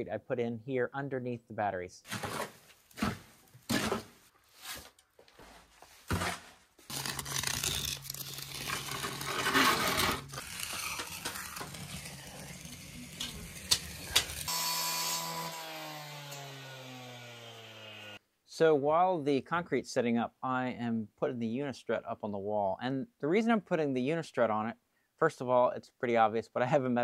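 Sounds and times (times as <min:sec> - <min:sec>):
scrapes and knocks: 0:02.1 - 0:06.6, 0:08.5 - 0:14.4
trowel scraping wet concrete: 0:06.9 - 0:14.5
cut-off saw motor winding down: 0:10.4 - 0:18.2.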